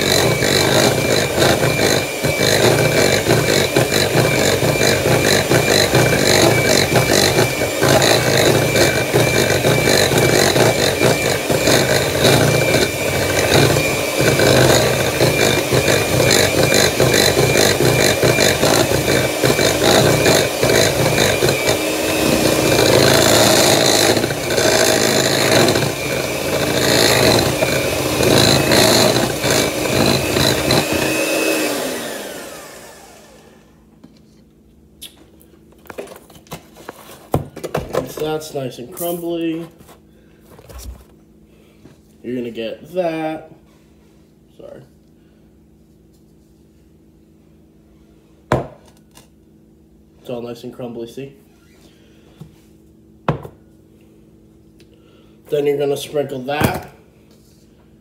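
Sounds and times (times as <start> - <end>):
electric hand mixer whine: 0.0 - 33.9.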